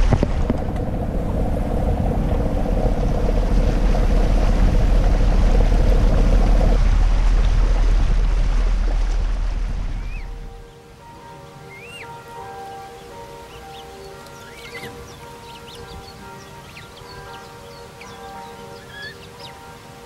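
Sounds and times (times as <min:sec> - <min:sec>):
boat engine running: 0:00.0 - 0:10.6
wind noise: 0:00.0 - 0:11.5, 0:13.9 - 0:20.0
high-pitched hum: 0:00.0 - 0:11.9
water noise: 0:00.0 - 0:20.0.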